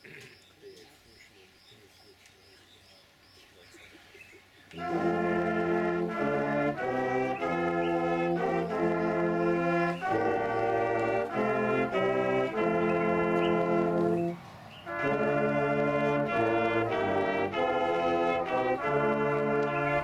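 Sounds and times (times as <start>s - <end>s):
brass ensemble playing a hymn: 4.7s - 20.0s.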